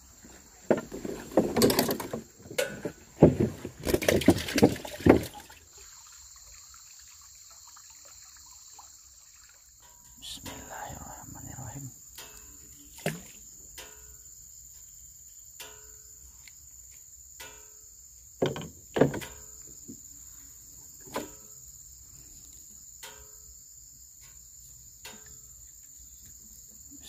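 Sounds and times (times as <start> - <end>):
high-pitched insect chorus: 0.0 - 27.0
short sharp knocks: 18.4 - 19.4.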